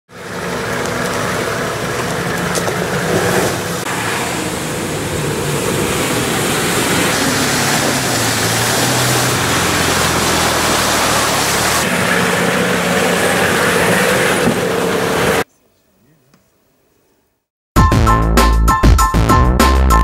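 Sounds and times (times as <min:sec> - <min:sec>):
off-road vehicle engines: 0:00.1 - 0:15.5
rushing noise: 0:01.3 - 0:15.4.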